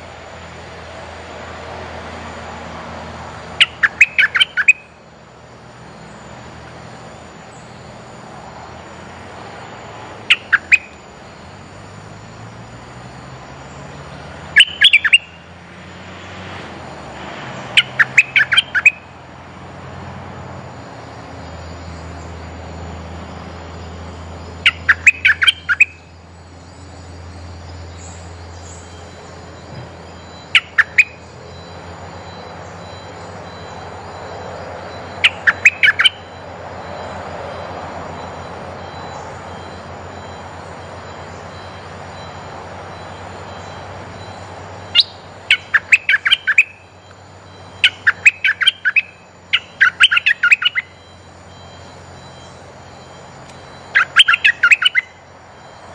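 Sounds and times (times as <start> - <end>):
bulbul calling: 3.4 - 5.1, 10.2 - 11.5, 14.4 - 15.5, 17.7 - 19.2, 24.4 - 37.2, 38.1 - 55.8.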